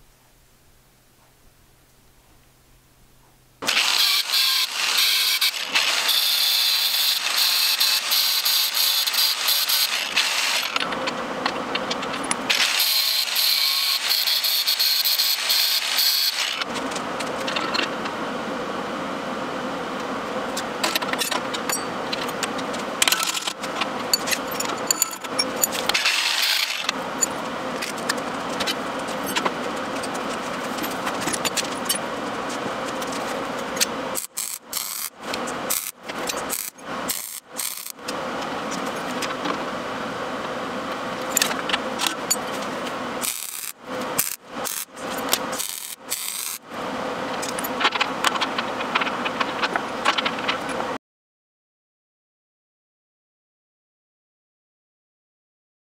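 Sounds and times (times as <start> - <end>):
steady hum: 16.6 - 51.0
steel parts clinking and rattling: 24.1 - 28.0.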